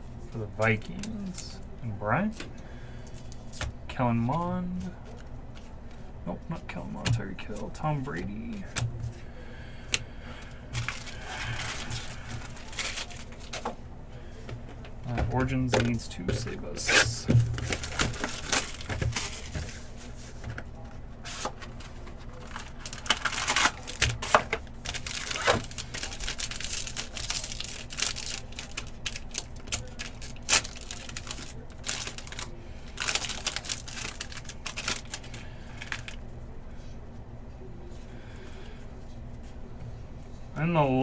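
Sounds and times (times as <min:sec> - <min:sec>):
clicks and rustles of handling cards: 0:00.7 - 0:01.6, 0:02.2 - 0:09.3, 0:09.9 - 0:13.8, 0:14.4 - 0:36.3
foil wrapper tearing and crinkling: 0:10.8 - 0:13.6, 0:16.8 - 0:20.0, 0:22.1 - 0:36.2.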